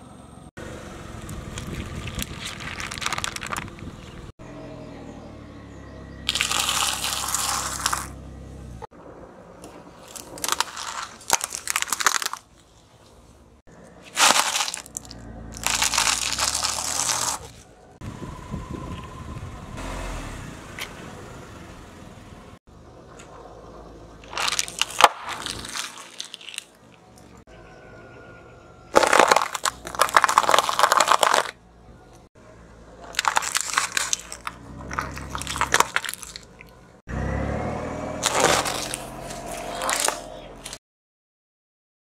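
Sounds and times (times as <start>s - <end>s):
tyre crushing crunchy snacks: 1.2s - 4.2s, 6.3s - 8.2s, 10.0s - 12.6s, 14.0s - 17.7s, 24.2s - 27.0s, 29.0s - 31.6s, 33.0s - 36.8s, 38.2s - 40.8s.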